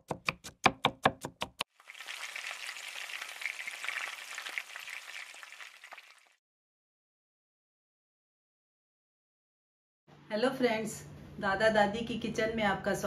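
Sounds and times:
knife chopping on cutting board: 0.0 - 1.6
food sizzling in a pan: 1.7 - 6.4.

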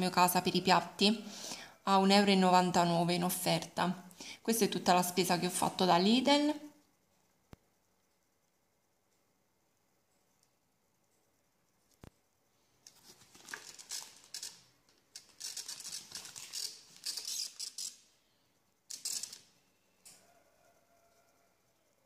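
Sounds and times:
plastic packaging crinkling: 12.9 - 17.9.

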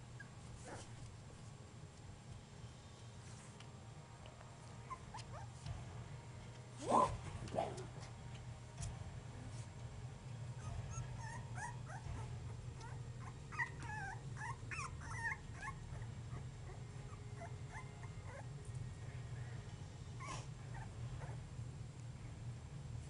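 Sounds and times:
puppies whimpering and squeaking: 4.8 - 5.7, 10.6 - 18.5.

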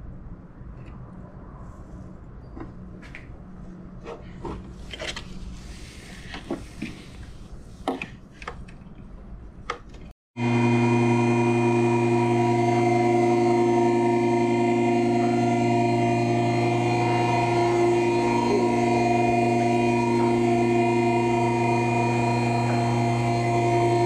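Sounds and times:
low shop hum: 0.0 - 24.0
car lift pump motor humming: 10.4 - 24.0.

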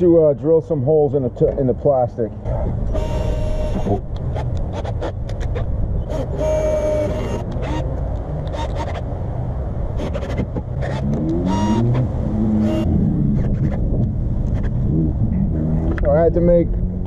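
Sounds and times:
low background rumble: 2.4 - 17.0
cordless drill whining: 2.9 - 4.0, 6.1 - 7.8.

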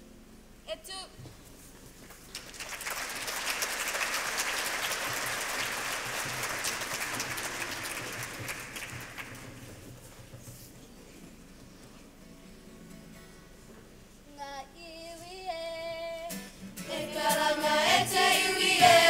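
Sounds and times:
audience applause: 2.2 - 9.9.

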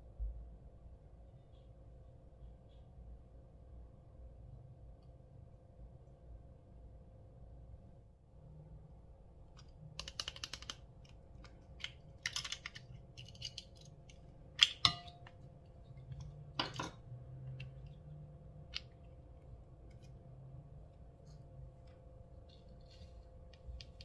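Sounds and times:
small clicks from handled objects: 23.4 - 24.0.

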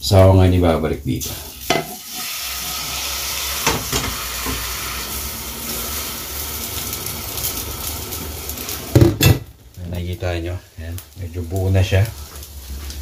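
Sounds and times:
omelette sizzling in oil: 0.8 - 13.0.

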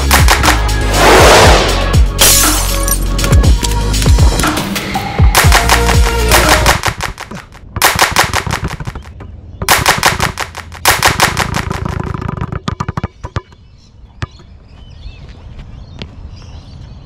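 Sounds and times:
basketball bouncing on hard court: 11.2 - 13.6, 14.2 - 14.6.

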